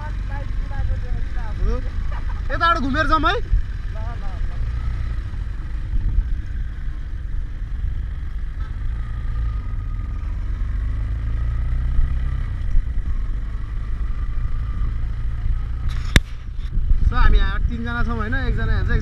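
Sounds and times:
motorcycle engine running: 0:00.0 - 0:19.0
wind rumble on microphone: 0:05.5 - 0:08.0, 0:14.4 - 0:19.0.

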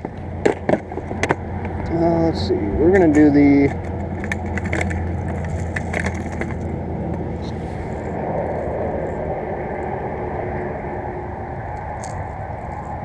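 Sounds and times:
low rumbling noise: 0:00.0 - 0:13.0
fishing tackle clicking and rattling: 0:02.9 - 0:07.3, 0:07.9 - 0:09.2, 0:11.9 - 0:13.0.

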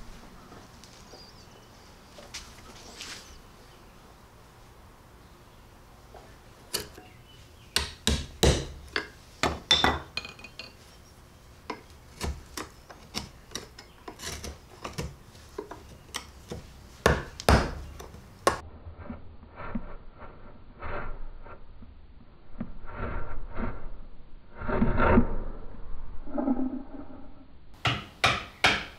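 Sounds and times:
chisel knocking on wood: 0:07.8 - 0:10.1, 0:11.7 - 0:18.6, 0:27.8 - 0:28.9.

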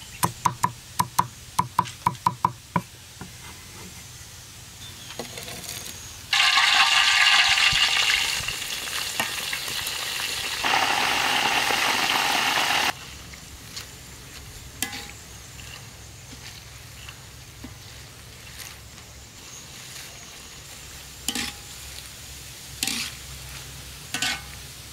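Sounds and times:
frying in hot oil sizzling: 0:06.3 - 0:13.0, 0:19.3 - 0:24.9.

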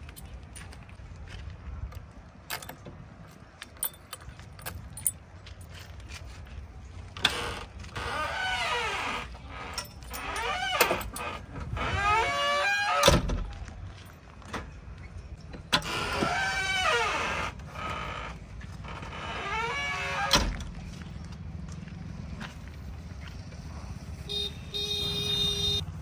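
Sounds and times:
cab door squeaking on hinges: 0:07.2 - 0:13.4, 0:15.7 - 0:20.7.

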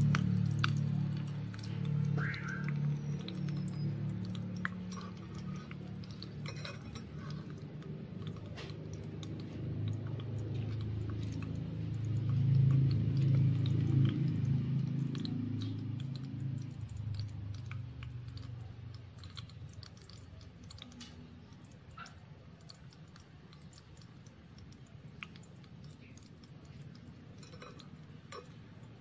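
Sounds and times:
hot oil sizzling and popping: 0:22.6 - 0:29.0.

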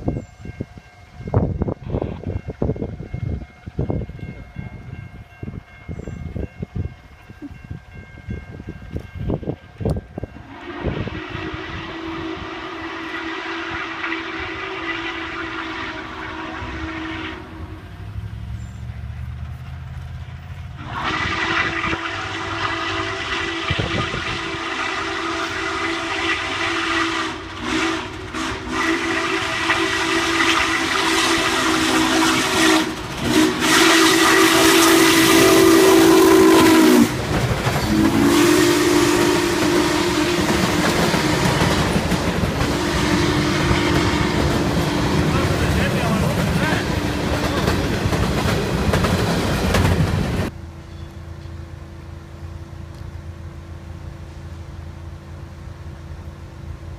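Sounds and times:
rumble of passing train: 0:00.0 - 0:56.9
steam whistle blasts: 0:10.3 - 0:17.9, 0:20.8 - 0:37.2, 0:37.8 - 0:42.0, 0:42.6 - 0:45.7.

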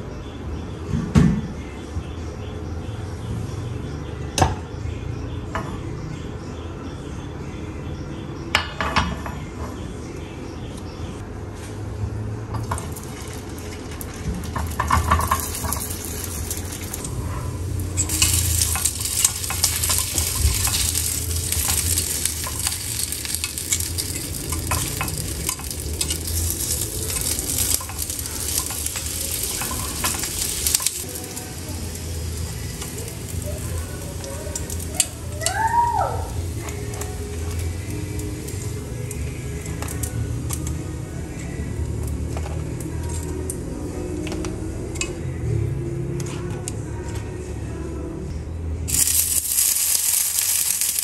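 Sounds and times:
food sizzling in hot oil: 0:12.6 - 0:40.7, 0:48.9 - 0:51.0
metal tongs clicking on pan: 0:14.5 - 0:17.2, 0:17.8 - 0:35.6.

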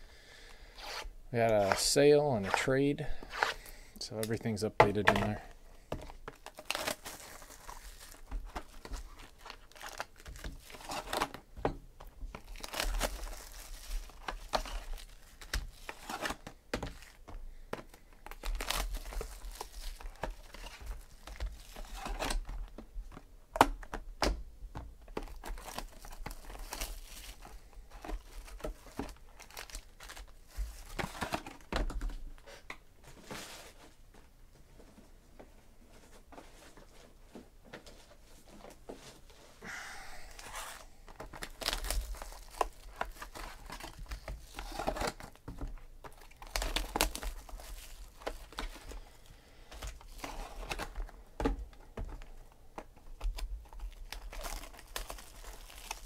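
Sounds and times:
boxes handled and opened: 0:04.3 - 0:39.6, 0:40.4 - 0:49.0, 0:49.7 - 0:56.0
plastic wrap tearing and crinkling: 0:06.1 - 0:11.4, 0:12.3 - 0:17.2, 0:18.2 - 0:22.7, 0:25.2 - 0:31.7, 0:40.4 - 0:45.4, 0:46.0 - 0:49.1, 0:49.8 - 0:51.1, 0:53.1 - 0:56.0.

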